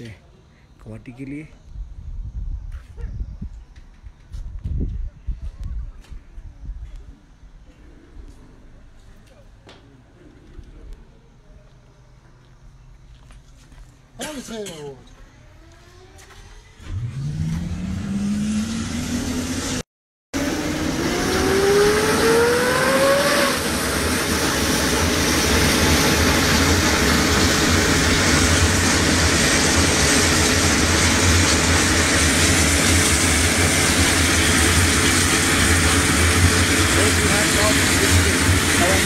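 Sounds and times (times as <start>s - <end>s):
helicopter engines and rotor: 14.3s - 19.8s, 20.4s - 39.0s
helicopter turbine whine rising: 14.3s - 19.8s, 20.4s - 39.0s.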